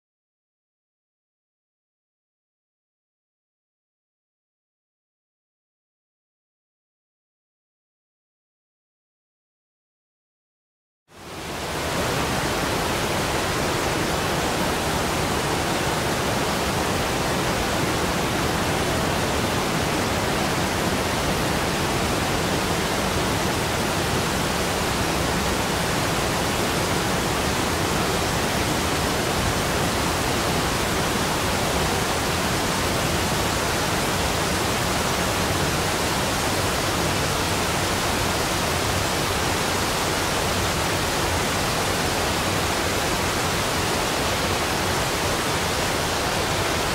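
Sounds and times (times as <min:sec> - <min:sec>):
water rushing from spillway: 0:11.2 - 0:46.9.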